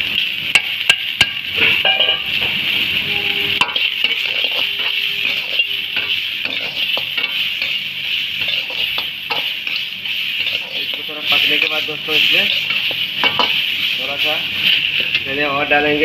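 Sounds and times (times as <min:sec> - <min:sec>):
food sizzling in hot oil: 0:00.0 - 0:16.0
spatula scraping metal pan: 0:03.1 - 0:15.2.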